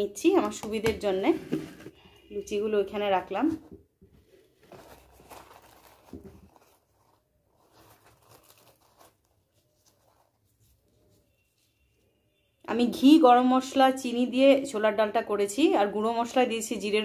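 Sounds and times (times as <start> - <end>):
fried bread tearing and crackling: 7.8 - 9.3.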